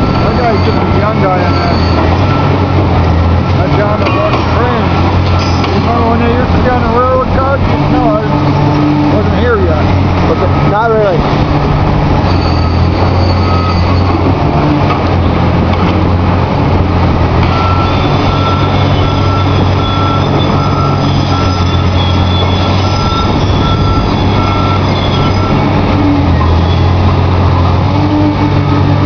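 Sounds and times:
warning alarm beeping: 0:00.0 - 0:11.1, 0:12.3 - 0:14.2, 0:17.4 - 0:25.8
excavator diesel engine running: 0:00.0 - 0:29.0.

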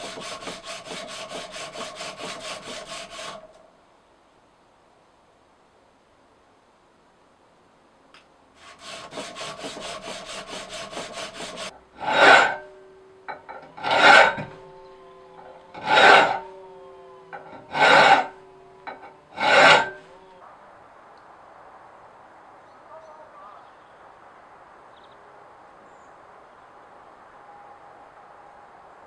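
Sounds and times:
file scraping steel blade: 0:00.0 - 0:03.6, 0:08.6 - 0:16.6, 0:17.2 - 0:20.4
steel ringing faintly: 0:09.1 - 0:16.6.

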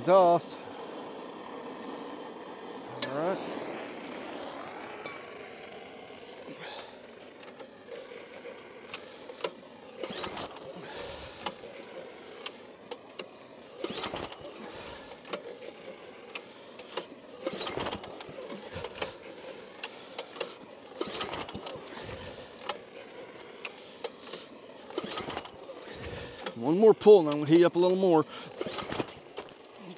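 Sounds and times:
propane torch hissing: 0:00.0 - 0:29.9
recoil starter cranking engine: 0:00.0 - 0:29.9.

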